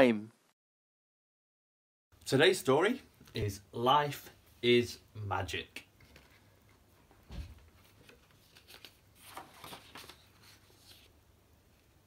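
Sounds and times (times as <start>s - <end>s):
paper pages rustling: 7.6s - 11.1s.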